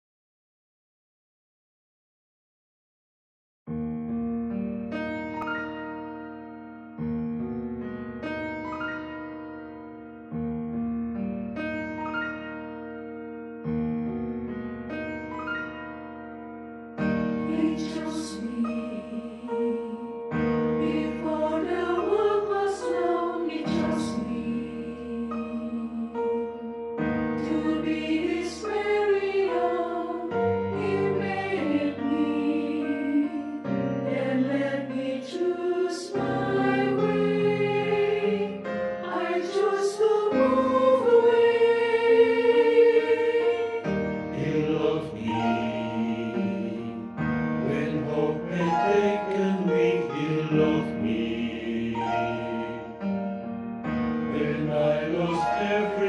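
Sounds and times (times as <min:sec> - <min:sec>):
church choir singing: 0:17.0 - 0:56.0.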